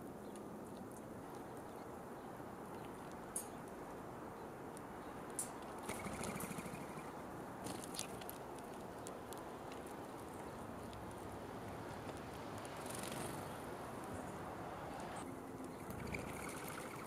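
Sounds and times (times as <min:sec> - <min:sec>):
low background noise: 0:00.0 - 0:17.0
animals picking at seed: 0:07.6 - 0:14.5.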